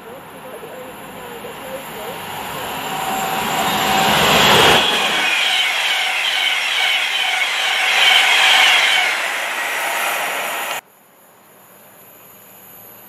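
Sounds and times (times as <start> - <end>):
electric train passing at speed: 0.0 - 10.8.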